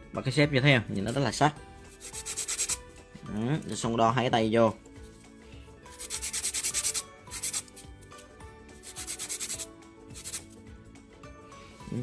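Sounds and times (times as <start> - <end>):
nail file rasping: 2.0 - 2.8, 5.9 - 7.9, 8.8 - 10.6.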